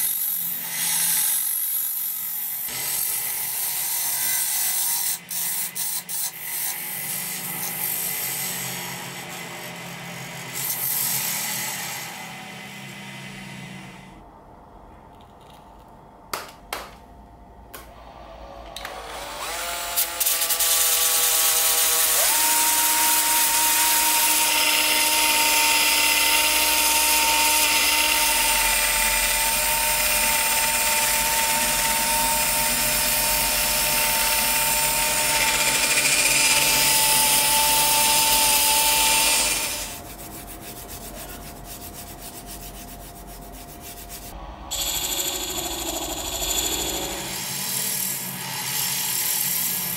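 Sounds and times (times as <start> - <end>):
drill motor whine: 18.5 - 40.0, 44.4 - 49.9
machine hum: 27.5 - 47.8.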